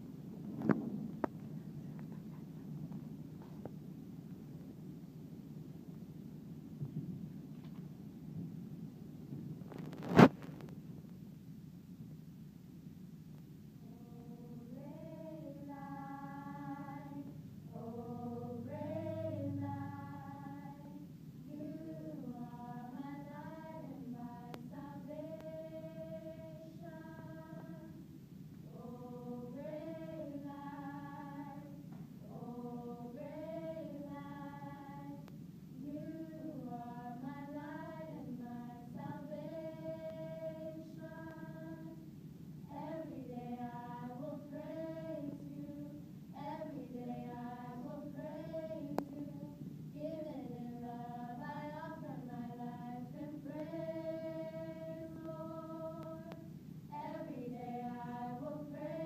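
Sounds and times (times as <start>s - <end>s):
small choir singing in harmony: 13.8s - 59.0s.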